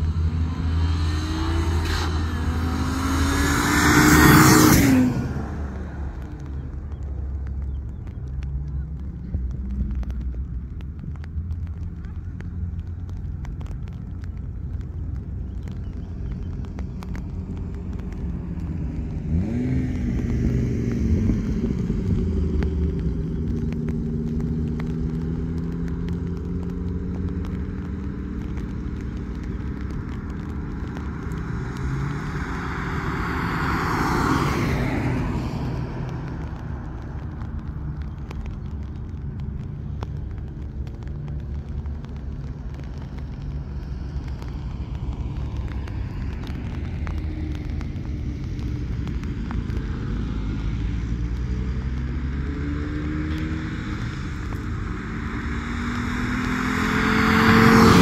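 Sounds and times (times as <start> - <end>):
car rushing past: 0.0 - 6.5, 28.6 - 36.9, 50.3 - 58.0
car engine revving: 0.0 - 7.7, 8.4 - 58.0
low rumble: 0.0 - 58.0.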